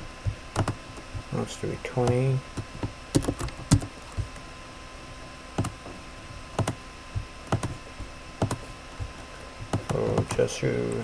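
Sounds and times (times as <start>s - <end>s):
faint steady background hum: 0.0s - 11.0s
computer keyboard and mouse clicks: 0.5s - 0.8s, 2.0s - 4.3s, 6.6s - 6.8s, 7.5s - 7.8s, 8.4s - 8.6s, 9.7s - 10.4s.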